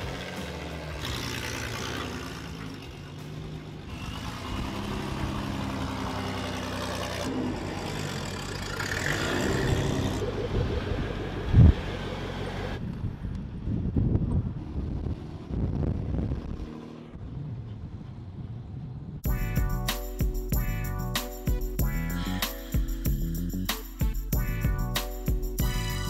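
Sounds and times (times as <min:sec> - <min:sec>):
vehicle engine running: 0:00.0 - 0:13.7.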